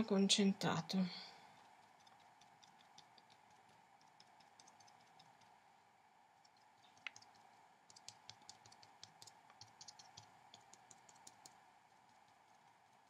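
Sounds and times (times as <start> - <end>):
faint steady hum: 0.0 - 13.0
brush tapping on paper: 1.8 - 5.6, 7.0 - 13.0.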